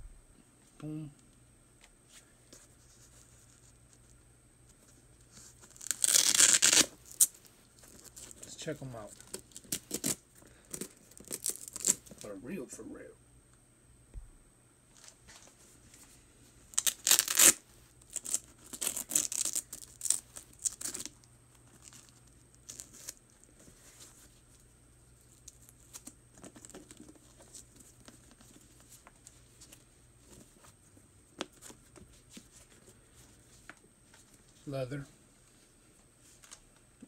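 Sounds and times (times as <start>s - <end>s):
velcro straps tearing open: 5.6s - 8.4s, 9.2s - 10.2s, 10.9s - 12.2s, 16.7s - 23.2s.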